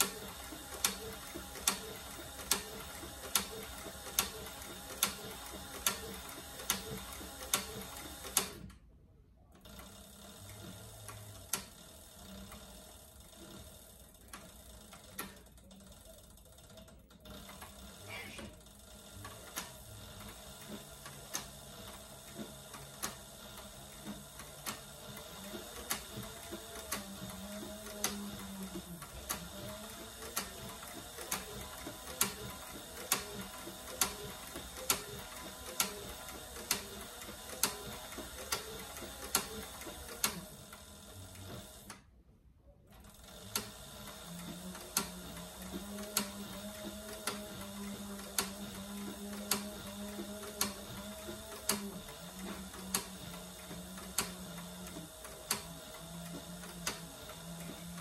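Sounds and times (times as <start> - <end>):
sewing machine stitch clicks: 0.0 - 8.7, 43.0 - 58.0
sewing machine low hum: 0.0 - 58.0.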